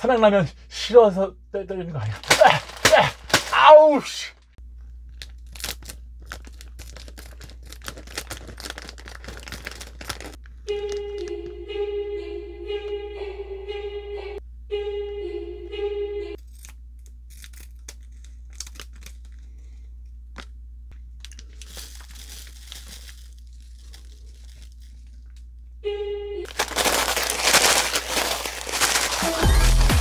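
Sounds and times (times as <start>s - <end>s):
plastic packet crinkling: 2.2s - 3.5s, 5.1s - 11.5s, 17.4s - 19.4s, 21.2s - 25.3s, 26.5s - 29.7s
sachet being shaken: 5.4s - 11.6s, 21.3s - 25.1s, 26.5s - 29.9s.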